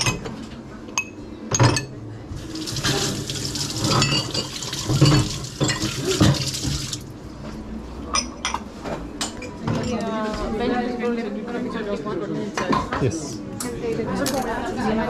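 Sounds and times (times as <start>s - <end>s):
sink sprayer hissing water: 2.4s - 7.1s
cups and glasses clinking: 3.8s - 6.5s.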